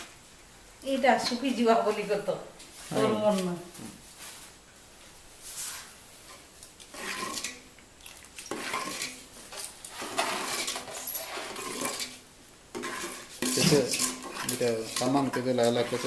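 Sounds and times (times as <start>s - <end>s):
metal ladle scraping in pot: 5.8s - 7.7s, 8.4s - 16.0s.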